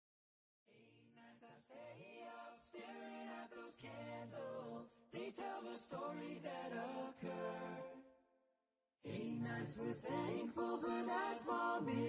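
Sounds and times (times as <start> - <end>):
voices singing a cappella: 0.7 - 8.1, 9.0 - 12.0.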